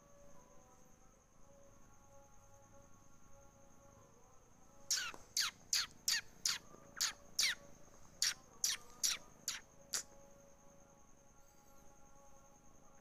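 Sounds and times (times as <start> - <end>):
bird chirping: 4.9 - 10.1.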